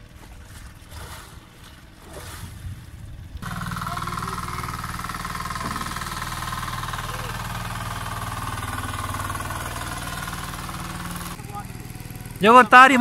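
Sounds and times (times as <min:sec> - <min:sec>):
people splashing in water: 0:00.0 - 0:02.9
boat engine running: 0:00.0 - 0:13.0.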